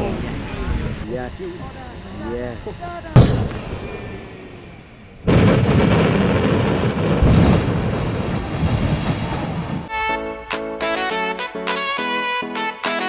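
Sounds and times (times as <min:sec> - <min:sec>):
volcano blast: 0:03.1 - 0:09.9
lava fountain rumbling: 0:05.3 - 0:09.9
saxophone background music: 0:09.9 - 0:13.0.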